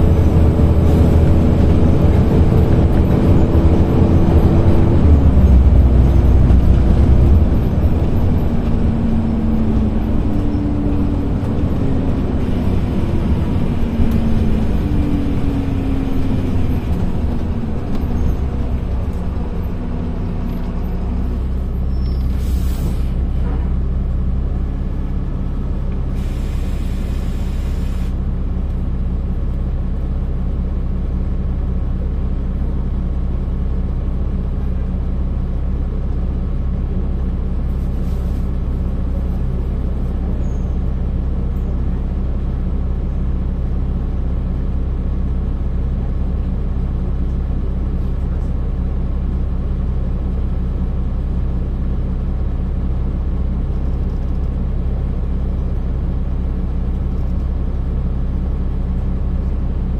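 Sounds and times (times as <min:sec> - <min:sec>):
bus diesel engine idling: 0:00.0 - 0:59.9
air brake hissing: 0:22.0 - 0:23.2, 0:26.1 - 0:28.2.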